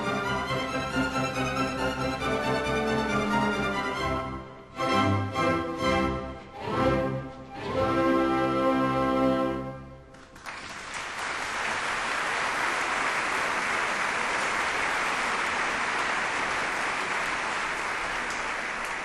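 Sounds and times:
audience applauding: 0:10.1 - 0:19.0.

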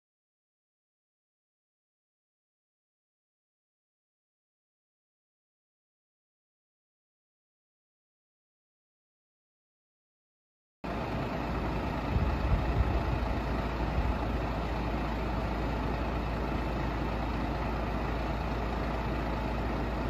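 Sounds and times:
diesel engine idling: 0:10.8 - 0:20.0
engine knocks: 0:10.9 - 0:20.0.

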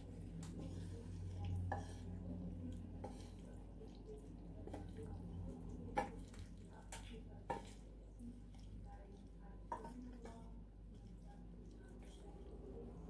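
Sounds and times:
wooden spatula scraping pan: 0:00.4 - 0:03.6.

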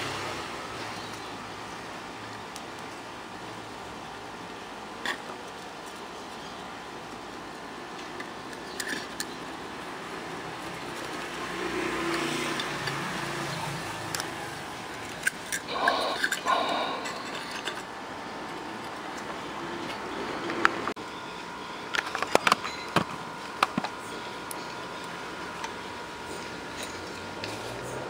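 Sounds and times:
passing vehicle: 0:11.0 - 0:14.8.

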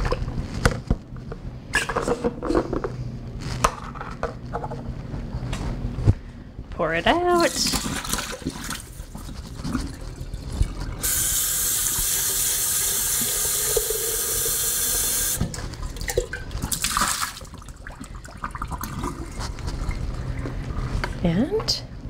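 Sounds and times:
faucet running into carafe: 0:11.0 - 0:16.3.

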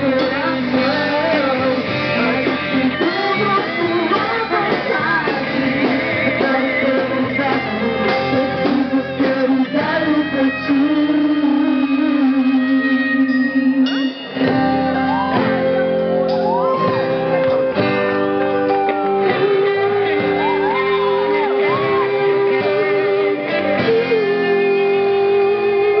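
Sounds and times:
people singing: 0:00.0 - 0:13.4, 0:19.3 - 0:26.0
drums: 0:00.0 - 0:26.0
electric guitars: 0:00.0 - 0:26.0.

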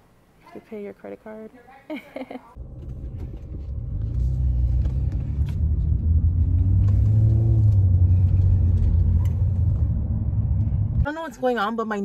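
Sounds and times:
car rumble from inside cabin: 0:02.6 - 0:11.7.

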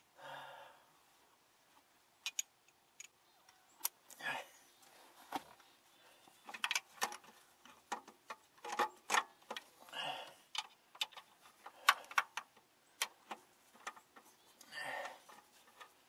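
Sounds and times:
metallic clicks of hand tools: 0:02.2 - 0:03.2.

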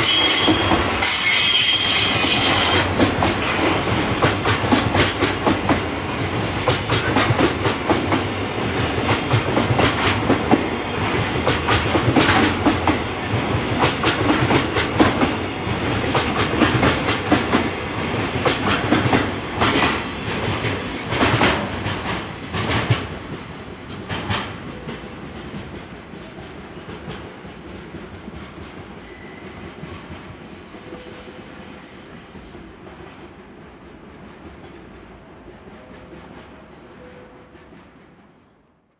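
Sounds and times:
high wheel squeals: 0:00.0 - 0:03.0, 0:25.8 - 0:28.3, 0:29.0 - 0:32.8
train wheels clattering over rail joints: 0:00.0 - 0:27.3.

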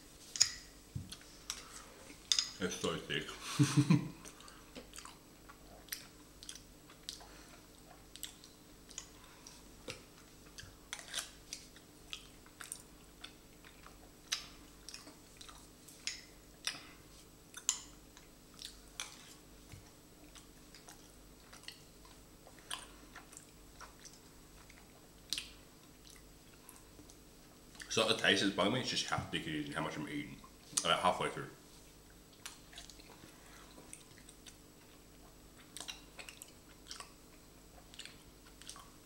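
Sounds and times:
sticky chewing and mouth clicks: 0:04.2 - 0:16.9, 0:17.5 - 0:27.9, 0:32.1 - 0:39.0.

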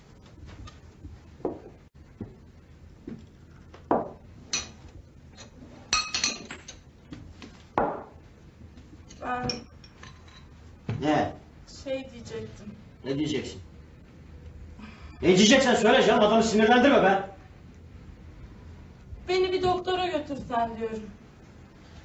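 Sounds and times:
tableware clinking: 0:04.0 - 0:04.8, 0:05.4 - 0:06.8, 0:09.4 - 0:10.6.

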